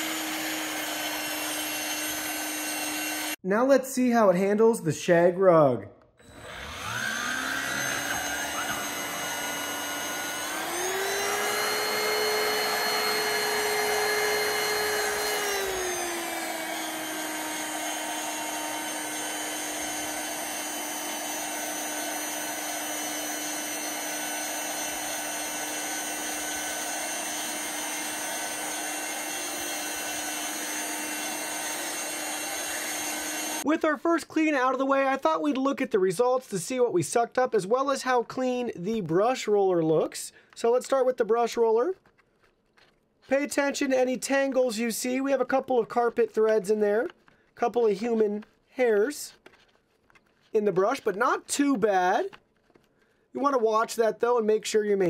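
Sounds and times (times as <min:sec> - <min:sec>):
vacuum cleaner motor whine: 0:00.0 - 0:03.4, 0:06.2 - 0:33.7.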